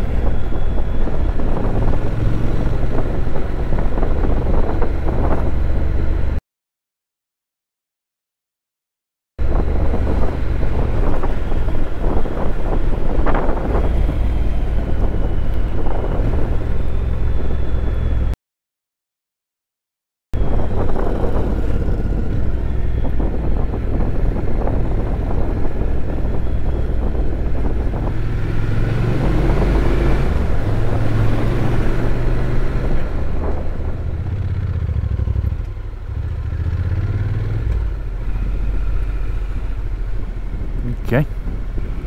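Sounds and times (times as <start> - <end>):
wind rush: 0.0 - 6.4, 9.4 - 17.8, 20.4 - 40.0
motorcycle engine running: 33.1 - 40.3.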